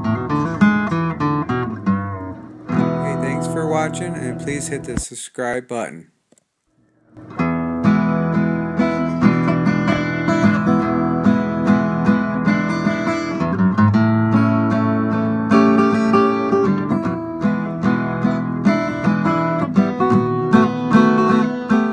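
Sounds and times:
strummed acoustic guitar: 0.0 - 5.0, 7.2 - 21.9.

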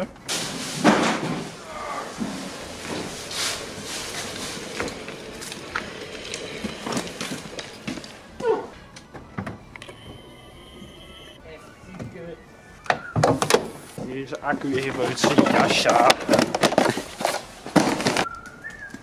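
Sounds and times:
tyres rolling over bricks and leaves: 0.0 - 11.4, 13.4 - 19.0
knocks and scrapes: 0.3 - 9.8.

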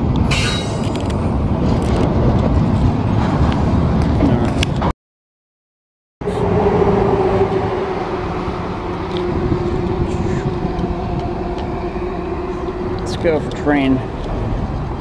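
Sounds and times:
engine-like hum: 6.2 - 15.0
held tone sagging in pitch: 6.2 - 15.0
low rumble: 6.2 - 15.0.

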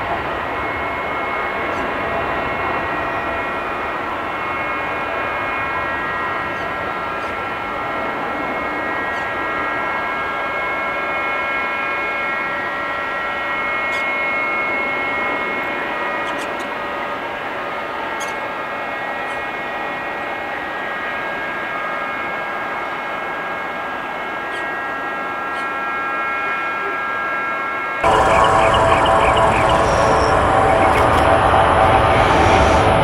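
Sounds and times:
distant jet taking off: 24.0 - 33.0.

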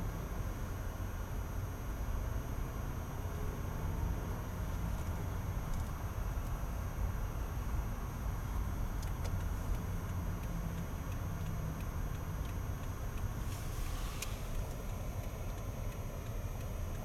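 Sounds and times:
car engine and tyres rumbling: 0.0 - 17.0
brief hiss: 13.4 - 14.5.

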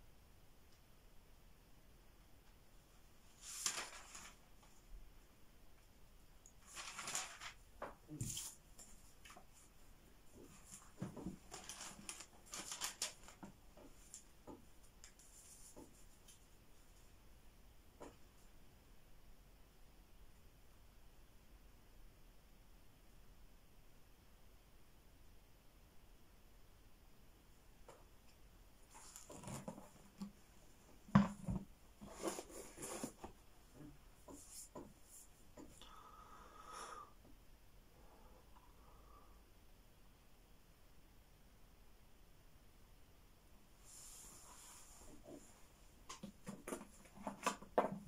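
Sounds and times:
book pages rustling: 3.3 - 4.7, 6.5 - 9.7, 10.4 - 16.4, 28.9 - 30.4, 31.2 - 33.4.

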